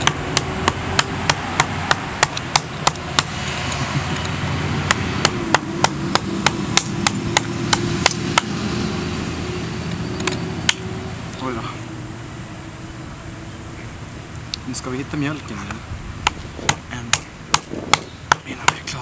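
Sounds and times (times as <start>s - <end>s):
knife chopping coconut husk: 0.0s - 3.4s, 4.8s - 8.6s.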